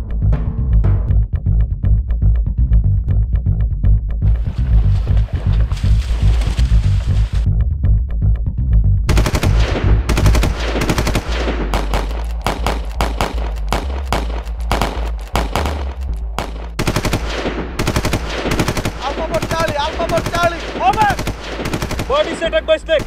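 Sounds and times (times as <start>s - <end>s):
machine-gun fire bursts: 9.1s - 23.0s.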